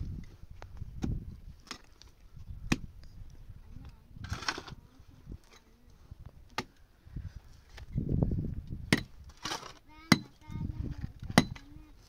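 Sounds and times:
shovel scraping soil: 4.2 - 4.8, 9.3 - 9.8.

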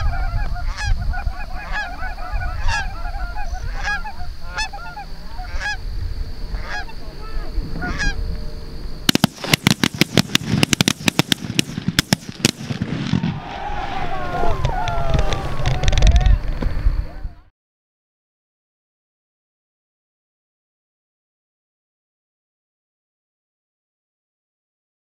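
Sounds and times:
geese honking: 0.0 - 8.3
shotgun blasts: 9.1 - 13.4.

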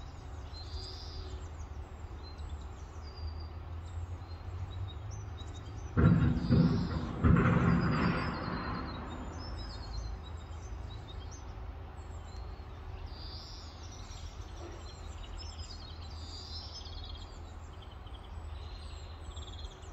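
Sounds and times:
songbirds chirping: 0.0 - 19.9
low rumble: 6.0 - 10.3.

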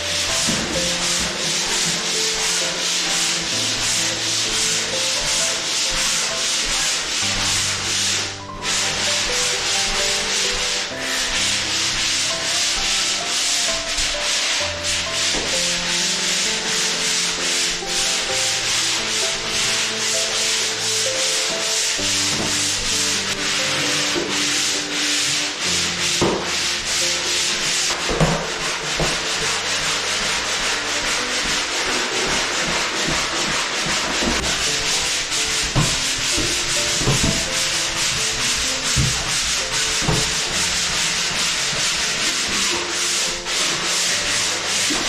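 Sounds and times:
sander scratching on wall: 0.0 - 45.0.

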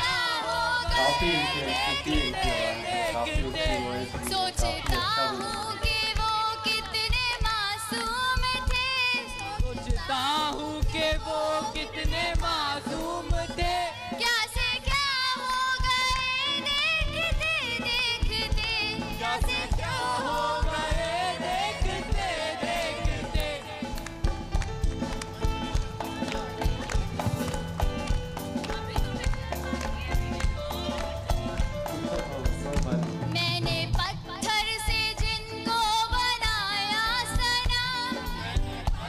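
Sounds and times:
woman singing with vibrato: 0.0 - 23.9
hand percussion beat: 0.0 - 39.0.

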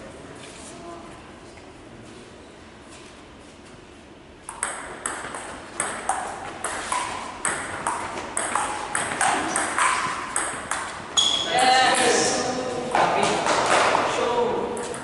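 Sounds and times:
table tennis ball hits: 4.5 - 12.4.

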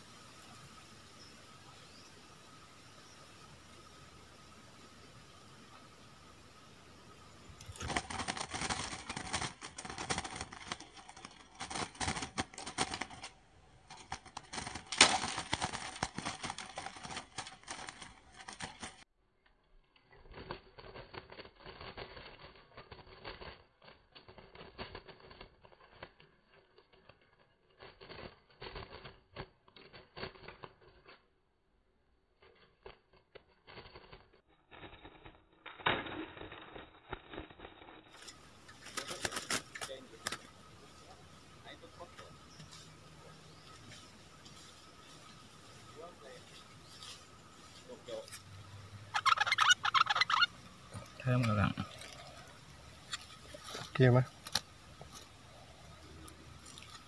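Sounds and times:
bird wings beating against cage: 7.6 - 19.0, 20.3 - 31.1, 38.2 - 41.6, 48.4 - 57.0.

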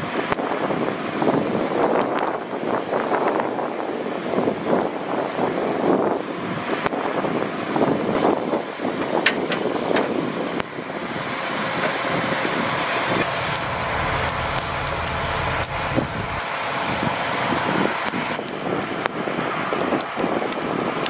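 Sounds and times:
diesel engines running: 7.6 - 21.0
deep engine rumble: 9.6 - 21.0.

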